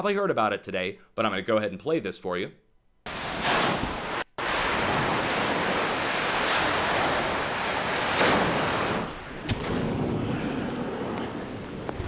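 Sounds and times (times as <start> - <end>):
steam explosion roar: 3.1 - 12.0.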